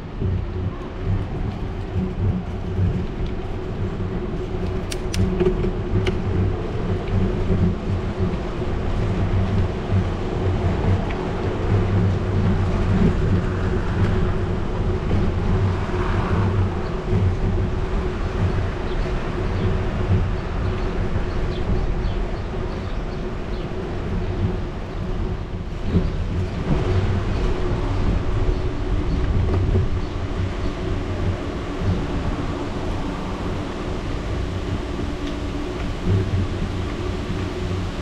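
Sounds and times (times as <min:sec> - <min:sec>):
bicycle rolling rumble: 0:00.0 - 0:38.0
sharp clicks: 0:04.8 - 0:06.2.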